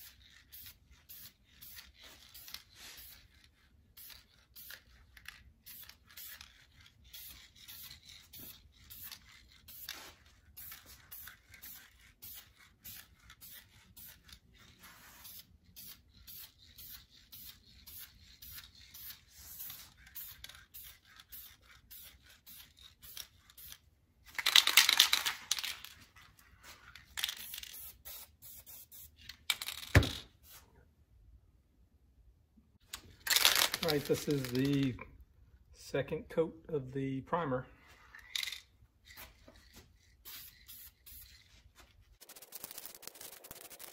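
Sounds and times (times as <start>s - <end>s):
spray can hissing: 0.0s - 3.3s, 7.0s - 14.2s, 14.8s - 23.7s, 27.2s - 29.2s, 40.2s - 41.5s, 42.2s - 43.9s
aerosol can ball rattling: 42.2s - 43.9s.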